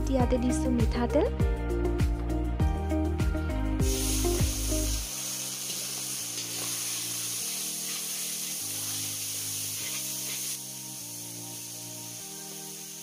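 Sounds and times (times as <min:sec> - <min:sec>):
meat sizzling in oil: 0:03.8 - 0:13.0.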